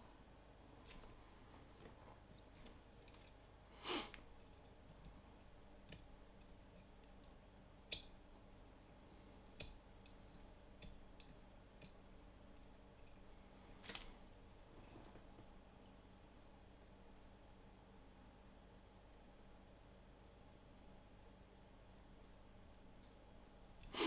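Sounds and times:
soft rustle: 0:00.6 - 0:04.6, 0:13.4 - 0:15.6.

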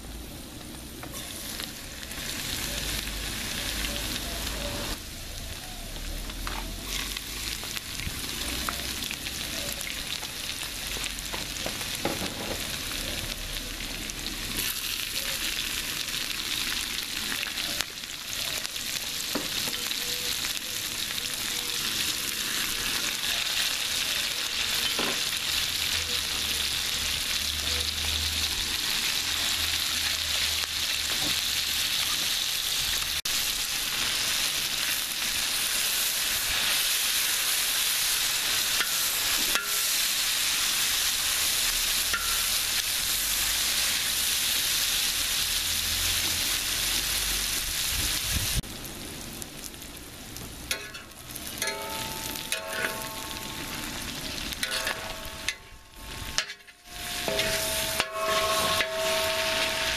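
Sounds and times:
food sizzling in hot oil: 0:00.0 - 0:59.9
metal spatula scraping steel: 0:38.7 - 0:40.1, 0:42.1 - 0:42.6, 0:50.7 - 0:59.9.

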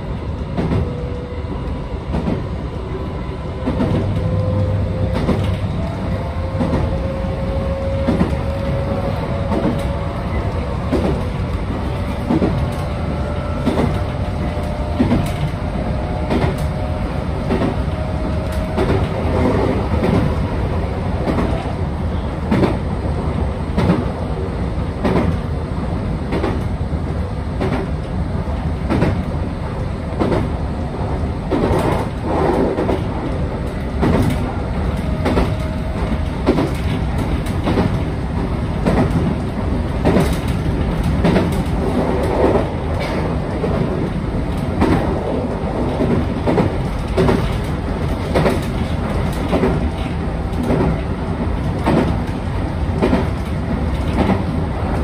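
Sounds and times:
train wheels rumbling: 0:00.0 - 0:55.0
wheels clacking over rail joints: 0:06.4 - 0:20.4, 0:31.5 - 0:55.0.

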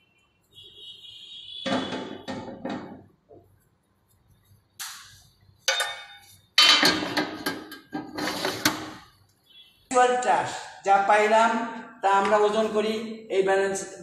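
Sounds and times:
brush scraping metal tray: 0:07.8 - 0:09.0.

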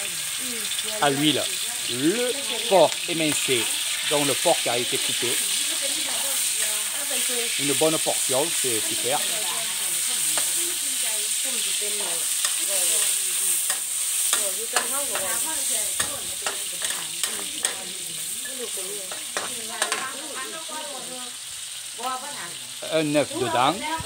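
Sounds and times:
meat sizzling in oil: 0:00.0 - 0:24.0
metal spatula scraping wok: 0:01.5 - 0:20.7
spatula clinking against wok: 0:12.3 - 0:20.1.

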